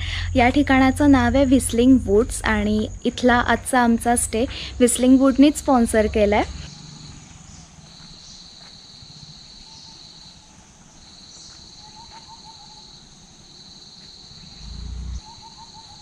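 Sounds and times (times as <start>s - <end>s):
low rumble: 0.0s - 8.0s
insects trilling: 0.0s - 16.0s
bird hooting: 14.4s - 16.0s.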